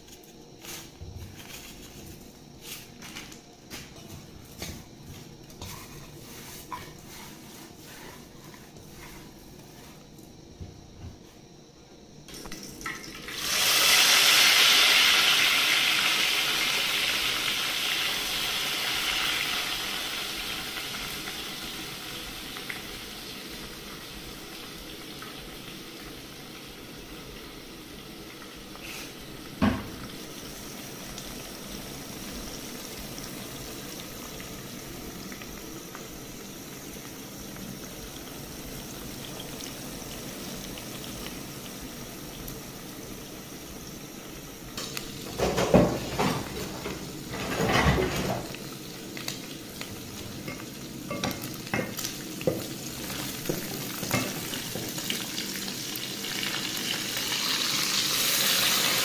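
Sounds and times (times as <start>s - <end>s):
fish frying in hot oil: 12.3s - 59.0s.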